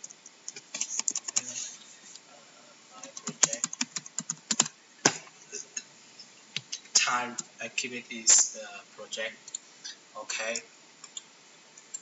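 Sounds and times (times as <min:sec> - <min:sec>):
typing on a keyboard: 0:00.0 - 0:01.5, 0:03.0 - 0:04.7.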